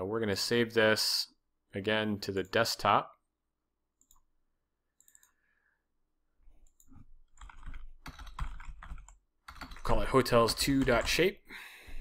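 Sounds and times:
computer mouse clicks: 4.0s - 4.3s, 5.0s - 5.4s
typing on a keyboard: 6.7s - 11.3s.

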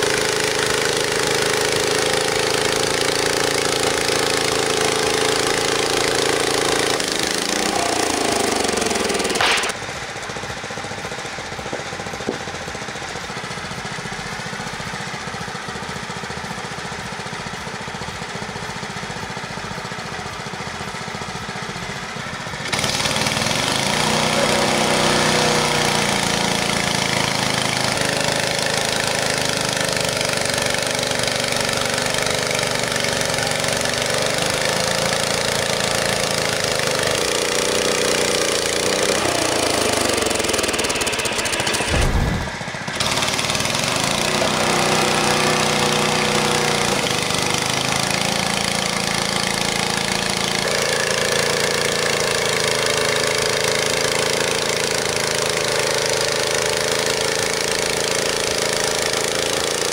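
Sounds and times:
sawmill engine running: 0.0s - 59.9s
band blade cutting wood: 6.1s - 9.8s, 38.0s - 45.0s.

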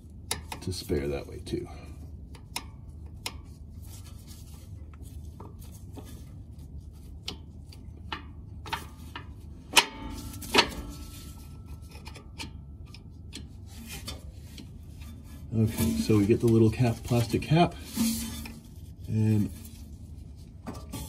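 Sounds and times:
metal clicks and light scraping: 7.0s - 18.8s.

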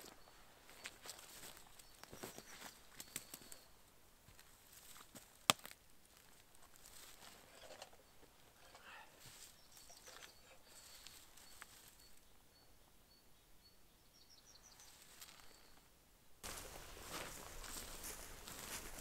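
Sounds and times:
footsteps in dry brush: 0.0s - 3.7s, 4.3s - 7.6s, 16.4s - 19.0s
high bird chirps: 0.0s - 3.7s, 8.9s - 15.8s.

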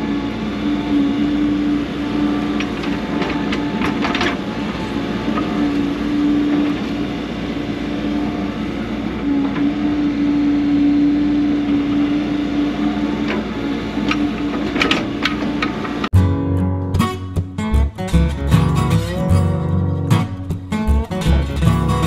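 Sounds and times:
hydraulic whine: 0.0s - 16.4s
diesel engine under load: 0.0s - 22.0s.

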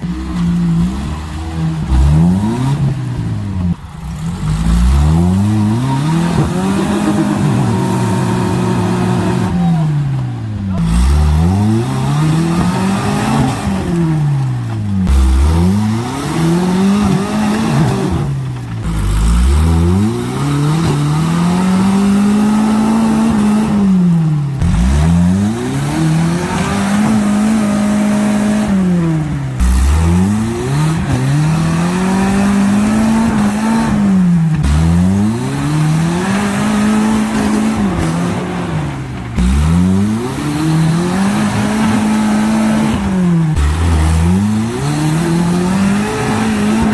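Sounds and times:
truck engine revving hard: 0.0s - 46.9s.

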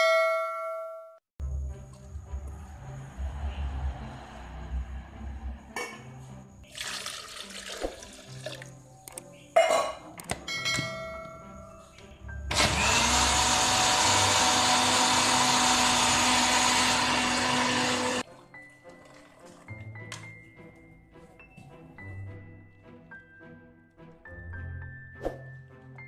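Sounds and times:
water splashing into jar: 6.6s - 9.2s
electric blender motor running: 12.5s - 18.2s.

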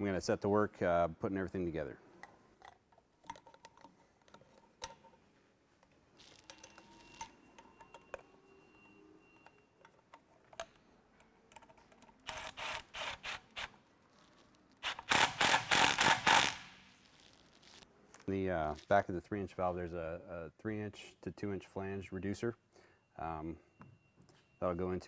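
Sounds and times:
faint clicks of parts handled: 2.1s - 8.3s, 9.4s - 12.3s
cordless ratchet whirring: 12.2s - 13.7s, 14.8s - 16.7s.

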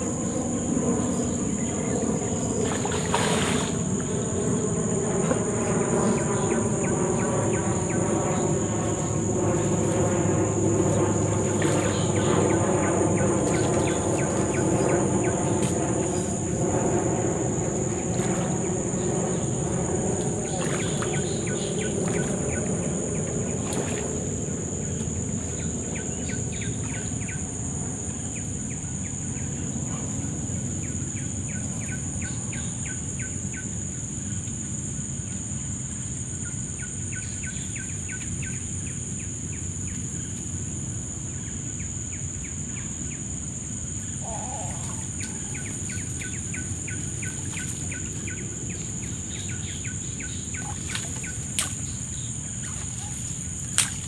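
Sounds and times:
low hum: 0.0s - 30.7s
high-pitched insect drone: 0.0s - 54.0s
bird calling: 11.0s - 16.4s, 20.3s - 22.9s, 44.1s - 54.0s.

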